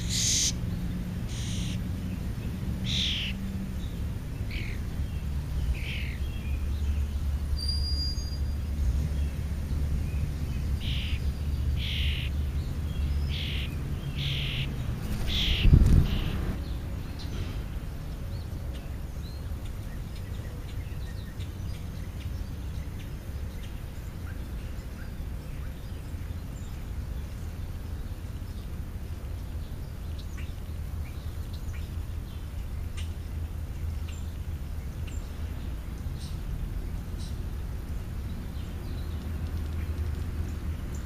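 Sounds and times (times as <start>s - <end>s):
starling chick begging calls: 0.0s - 0.6s, 1.3s - 1.8s, 2.8s - 3.4s, 10.8s - 11.2s, 11.8s - 12.4s, 13.3s - 16.5s.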